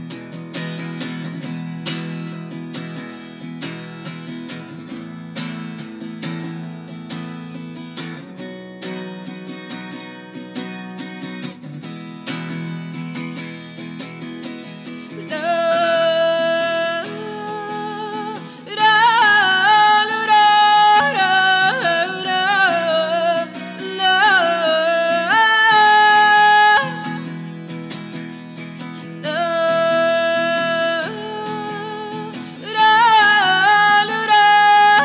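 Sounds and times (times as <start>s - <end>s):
acoustic guitar: 0.0s - 35.0s
woman singing: 14.9s - 35.0s.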